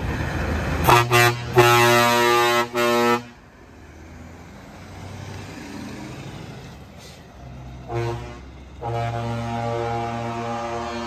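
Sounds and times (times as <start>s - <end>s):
truck air horn: 0.8s - 3.4s, 7.8s - 11.0s.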